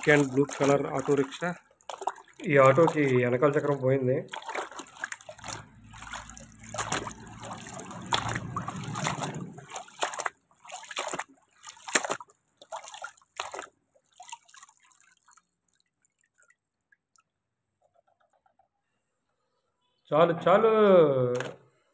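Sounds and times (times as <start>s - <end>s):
muddy water sloshing: 0.0s - 17.3s
water drips: 0.0s - 18.3s.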